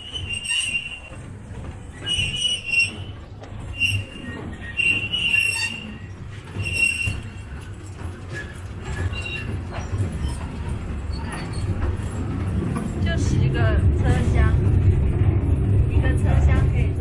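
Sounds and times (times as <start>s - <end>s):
high-pitched wheel squeals: 0.0s - 1.2s, 1.9s - 7.6s, 8.4s - 9.5s
train rumbling on track: 0.0s - 17.0s.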